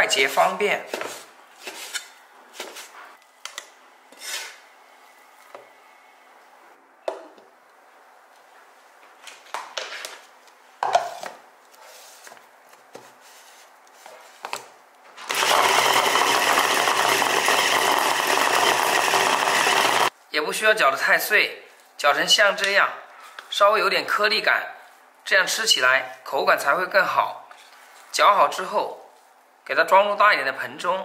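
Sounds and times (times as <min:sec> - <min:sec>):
electric meat grinder whirring: 0:15.3 - 0:20.1.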